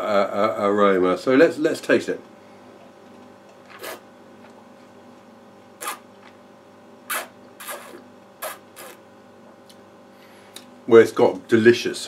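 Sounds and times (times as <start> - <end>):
hissing wine slurps: 3.7 - 4.0.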